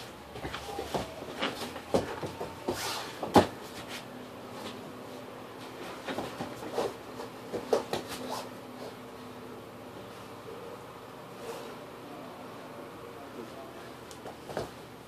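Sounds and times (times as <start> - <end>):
bodies thumping on mats: 0.4 - 4.0, 5.9 - 8.2.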